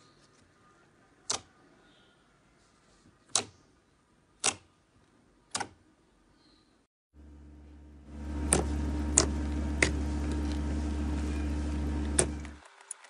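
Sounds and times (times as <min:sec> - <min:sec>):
steady low hum: 0:07.2 - 0:12.6.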